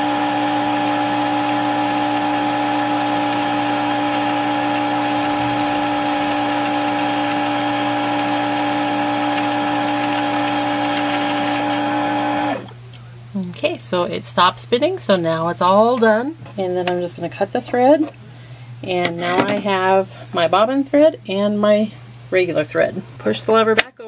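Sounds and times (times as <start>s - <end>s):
sewing machine motor whine: 0.0s - 12.7s.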